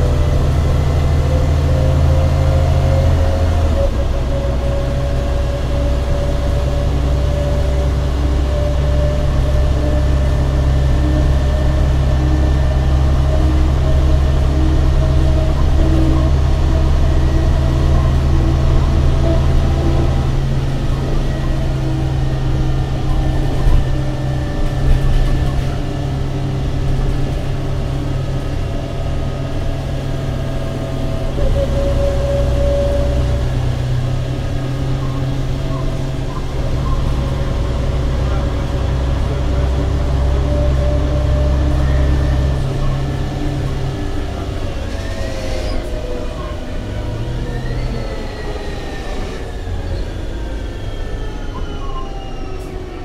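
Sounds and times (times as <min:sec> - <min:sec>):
bus diesel engine drone: 0:00.0 - 0:53.0
faint engine whine: 0:00.0 - 0:53.0.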